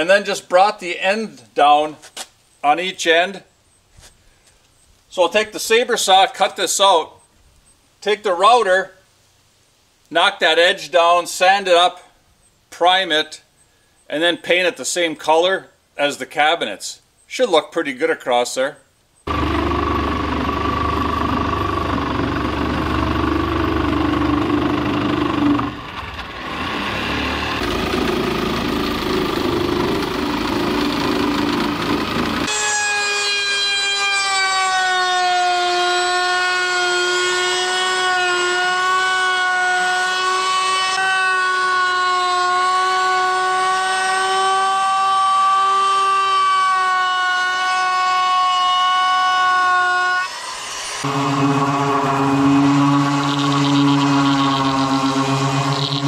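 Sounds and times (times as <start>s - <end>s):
jigsaw cutting wood: 19.3s - 32.5s, 52.1s - 56.0s
router high whine: 19.3s - 34.1s, 49.8s - 56.0s.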